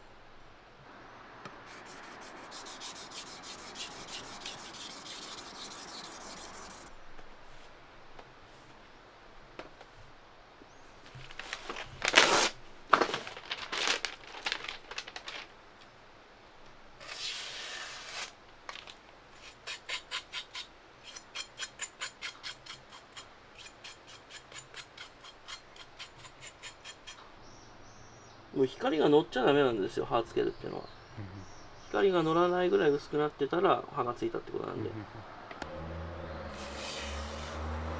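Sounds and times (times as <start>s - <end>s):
cloth wiping knife blade: 1.7s - 6.9s, 36.5s - 37.7s.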